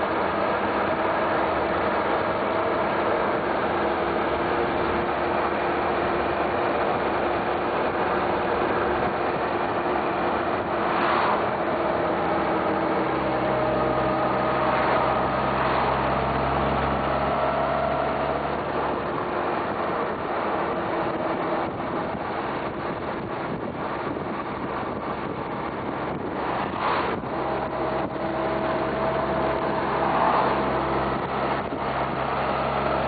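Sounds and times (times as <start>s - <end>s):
wind on microphone: 0.0s - 33.0s.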